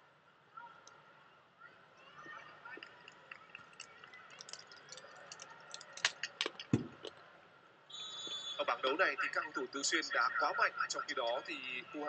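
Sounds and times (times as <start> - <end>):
faint arena background noise: 0.0 - 12.0
volleyball hits: 6.3 - 7.2.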